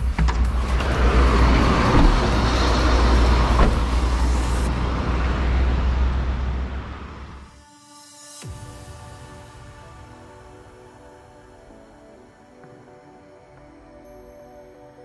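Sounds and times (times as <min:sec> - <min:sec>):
road traffic: 0:00.0 - 0:07.6
car door opening click: 0:01.7 - 0:04.1.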